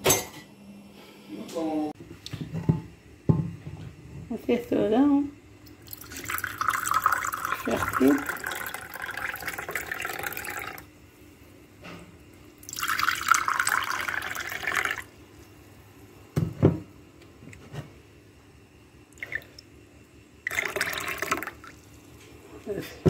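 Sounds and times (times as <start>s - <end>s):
liquid pouring into a glass: 5.8s - 10.9s, 12.6s - 15.1s, 19.2s - 19.7s, 20.5s - 22.2s.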